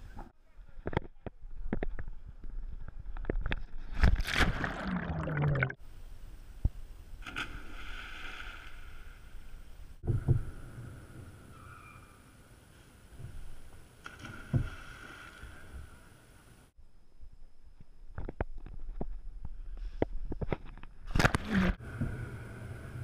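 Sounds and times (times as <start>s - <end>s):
water splashing and sloshing: 3.9s - 5.8s, 7.2s - 10.4s, 14.0s - 15.9s.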